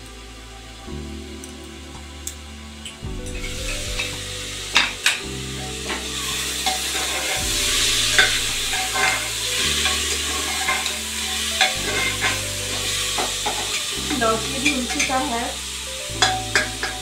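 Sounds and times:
frying sizzle: 0:00.0 - 0:17.0
metal spoon clinking and scraping pot: 0:08.2 - 0:13.8, 0:16.2 - 0:17.0.

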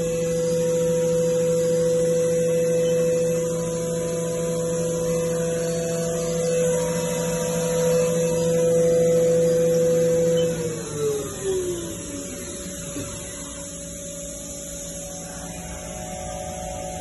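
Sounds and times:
machine spindle whining: 0:00.0 - 0:17.0.

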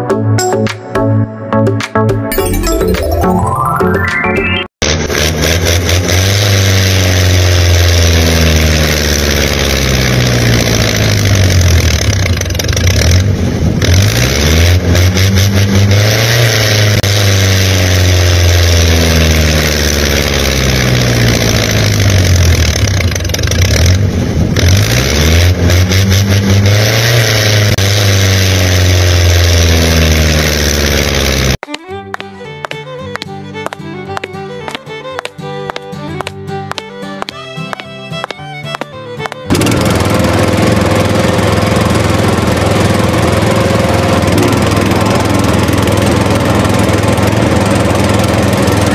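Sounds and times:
engine revving: 0:04.8 - 0:31.6, 0:36.9 - 0:48.9.

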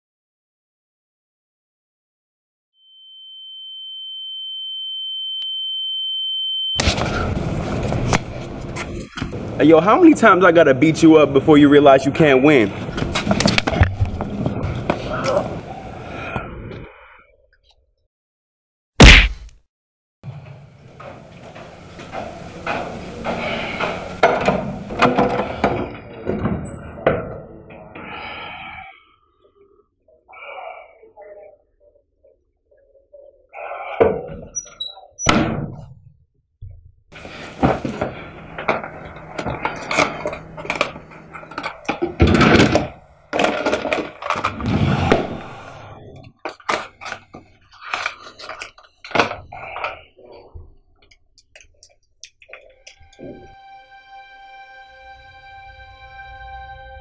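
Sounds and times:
high-pitched sine tone: 0:02.8 - 0:06.8
punch hit: 0:06.8 - 0:07.3, 0:19.0 - 0:19.6.

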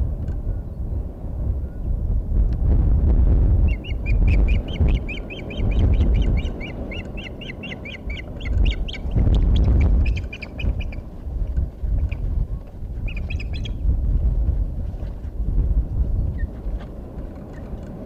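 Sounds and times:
wind rumble on microphone: 0:00.0 - 0:18.0
osprey chirping: 0:03.6 - 0:11.2, 0:11.9 - 0:12.3, 0:13.0 - 0:13.8.

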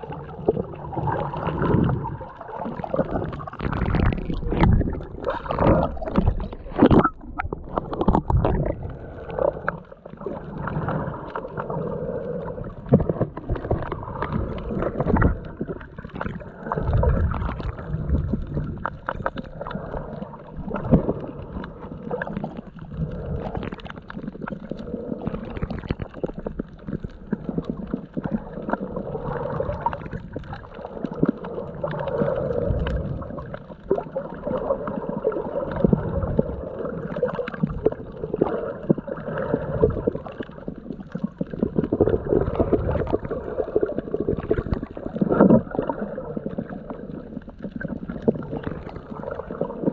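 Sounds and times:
muffled underwater gurgling: 0:00.0 - 0:49.9.

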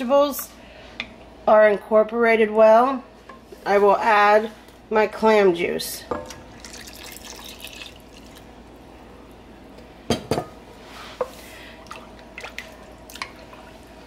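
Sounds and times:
liquid pouring into a pot: 0:06.2 - 0:08.7.

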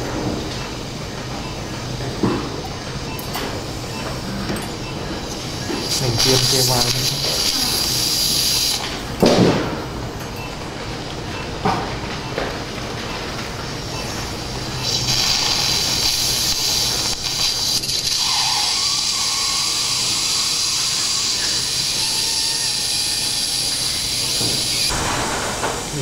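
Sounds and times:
surgical suction hiss: 0:05.6 - 0:08.9, 0:14.8 - 0:24.9.

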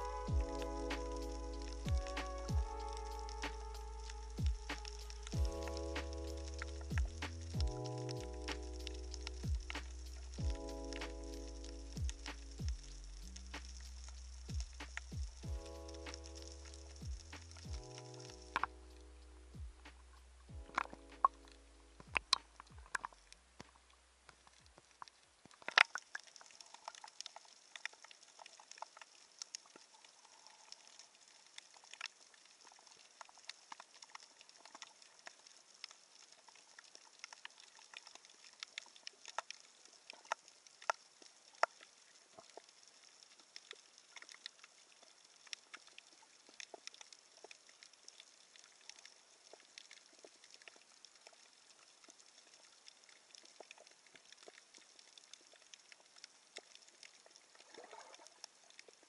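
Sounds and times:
steady underwater hiss: 0:00.0 - 0:23.9
underwater crackle of clicks: 0:00.1 - 0:19.1, 0:19.9 - 0:59.0.

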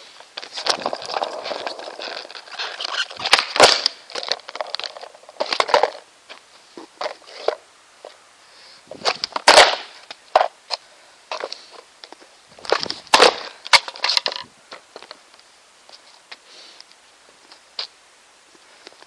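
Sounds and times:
skateboard deck cracking on paving: 0:00.0 - 0:08.2, 0:09.0 - 0:15.3.

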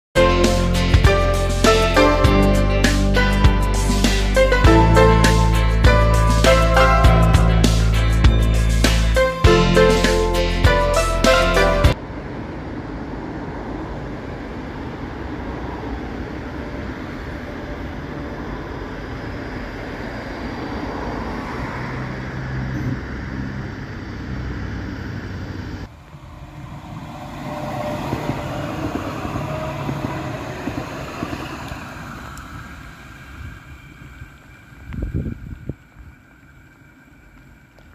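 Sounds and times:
tram rolling past: 0:00.2 - 0:37.9
faint whine: 0:12.0 - 0:37.9
train wheels rumbling on rail: 0:25.6 - 0:37.9.

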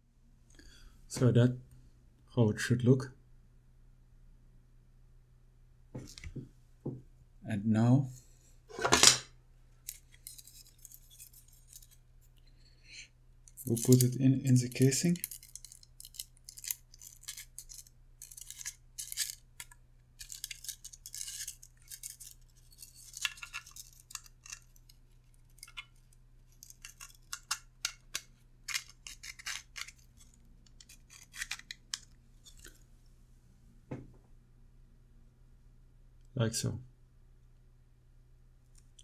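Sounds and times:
plastic parts scraping and clicking: 0:13.5 - 0:32.8.

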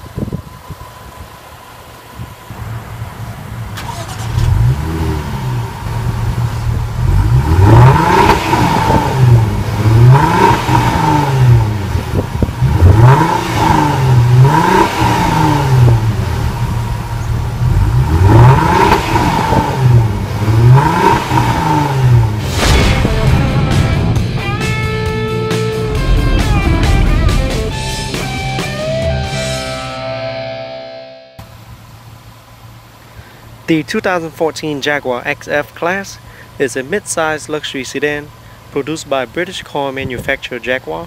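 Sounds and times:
car engine revving: 0:00.0 - 0:30.8.

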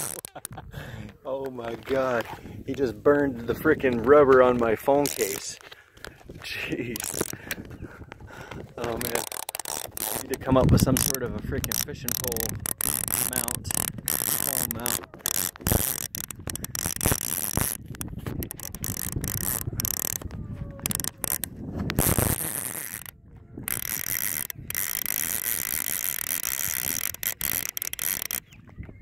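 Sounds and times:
fishing reel clicker ratcheting: 0:00.0 - 0:00.5, 0:05.0 - 0:05.6, 0:06.9 - 0:07.6, 0:08.7 - 0:28.5.

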